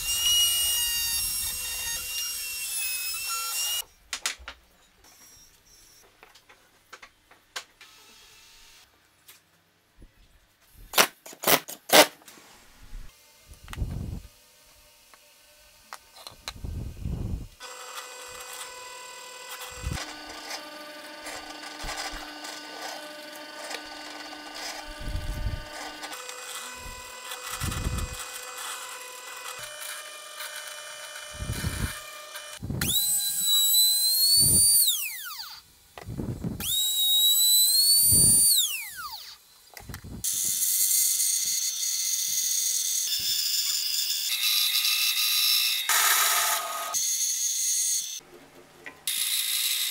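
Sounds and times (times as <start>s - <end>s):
band saw cutting plywood: 0.0s - 3.8s, 16.1s - 35.6s
motor whining: 16.2s - 35.6s
drill press boring plywood: 17.6s - 35.6s, 36.6s - 39.4s.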